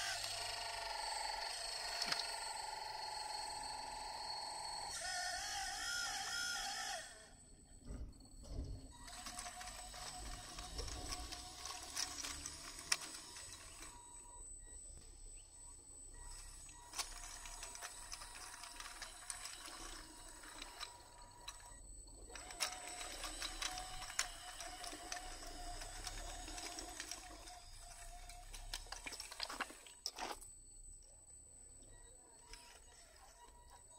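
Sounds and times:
small electric motors whining: 0.0s - 33.9s
metal tracks clicking on rubble: 8.9s - 13.9s, 16.9s - 21.7s, 22.3s - 30.5s.

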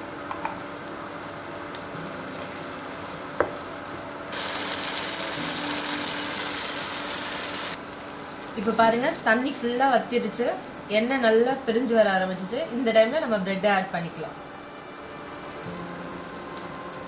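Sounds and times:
sauce simmering and sizzling in pan: 0.7s - 9.4s.

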